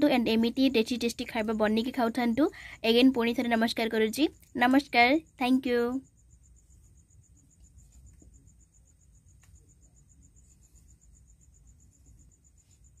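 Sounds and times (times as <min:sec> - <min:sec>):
faint high-pitched pulsing trill: 0:00.0 - 0:13.0
faint click: 0:09.3 - 0:09.7.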